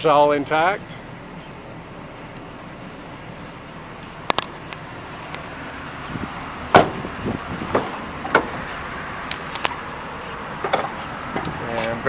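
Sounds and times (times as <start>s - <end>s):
van door latch clunk: 6.7s - 8.7s, 10.6s - 11.9s.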